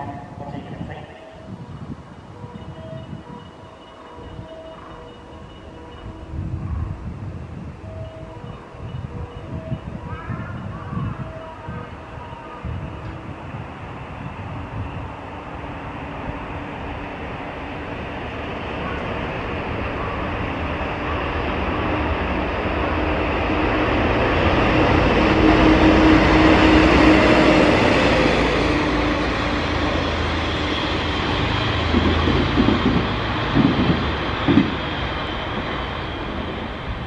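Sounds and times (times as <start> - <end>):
diesel locomotive engine drone: 0.0 - 37.0
wheels clacking over rail joints: 31.0 - 36.7.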